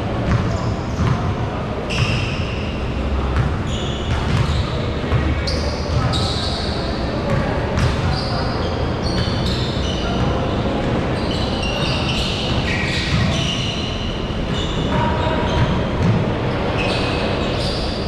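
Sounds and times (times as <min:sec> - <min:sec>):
shoes squeaking on floor: 0:01.9 - 0:02.9, 0:03.6 - 0:07.0, 0:07.8 - 0:18.0
basketballs bouncing on wood: 0:04.1 - 0:04.5.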